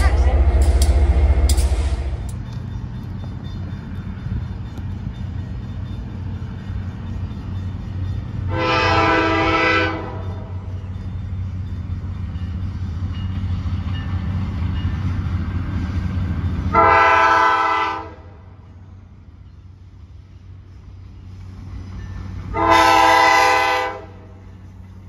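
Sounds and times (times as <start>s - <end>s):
low rumble of train: 0.0s - 25.0s
locomotive air horn blasts: 8.5s - 10.4s, 16.7s - 18.4s, 22.5s - 24.4s.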